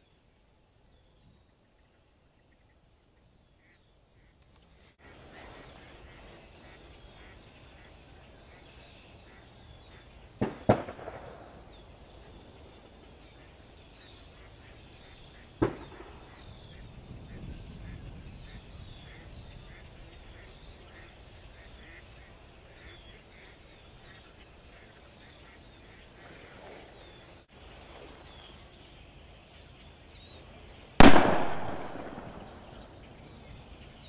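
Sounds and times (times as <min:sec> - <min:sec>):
ducks quacking faintly: 0:01.6 - 0:34.0
distant shotgun shots echoing: 0:10.4 - 0:11.8, 0:15.6 - 0:16.4, 0:31.0 - 0:33.0.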